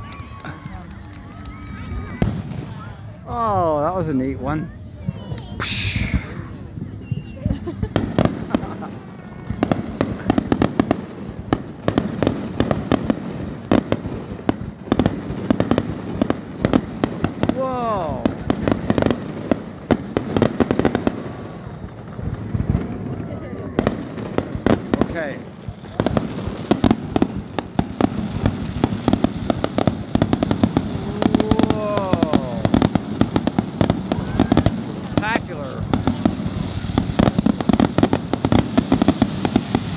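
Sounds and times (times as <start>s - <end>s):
continuous rumble: 0.0s - 39.9s.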